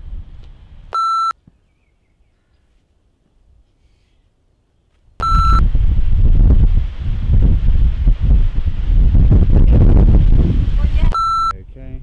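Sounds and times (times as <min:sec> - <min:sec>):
outdoor background noise: 0:00.0 - 0:12.0
short electronic beeps: 0:00.9 - 0:01.4, 0:05.2 - 0:05.6, 0:11.1 - 0:11.6
loud wind noise: 0:05.2 - 0:12.0.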